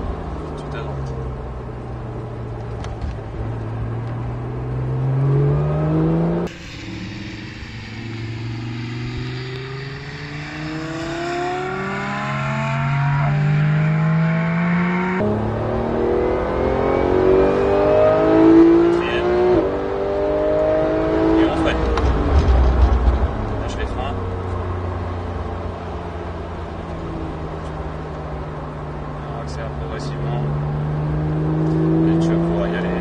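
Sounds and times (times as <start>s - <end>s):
sports car accelerating hard: 0.0s - 33.0s
car driving past: 4.0s - 25.5s.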